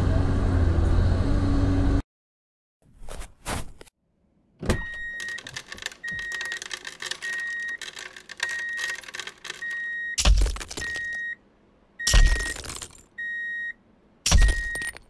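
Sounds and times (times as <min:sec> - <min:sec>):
toy rocks clicking and rattling: 0:05.2 - 0:11.2
high electronic beeps: 0:08.4 - 0:11.4, 0:12.0 - 0:12.7, 0:14.3 - 0:15.0.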